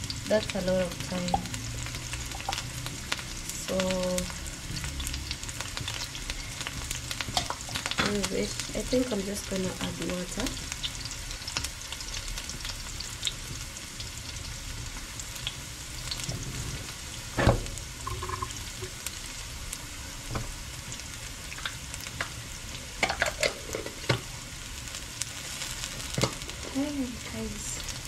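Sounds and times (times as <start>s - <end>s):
onions and eggs frying in oil: 0.0s - 28.0s
loud thump: 17.4s - 17.8s.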